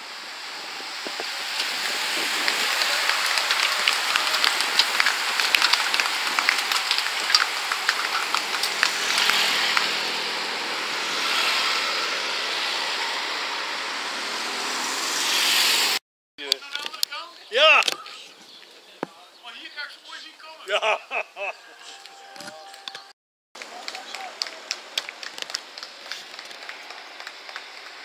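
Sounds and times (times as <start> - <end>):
bicycle tyre hiss: 0.0 - 16.0
motorbikes passing: 0.0 - 16.0.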